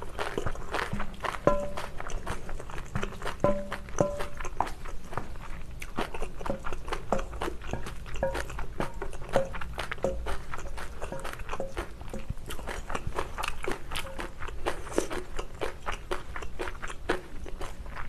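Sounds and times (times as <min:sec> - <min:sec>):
close-up chewing: 0:00.0 - 0:18.0
utensils clinking on metal bowl: 0:00.4 - 0:04.6, 0:06.4 - 0:15.0.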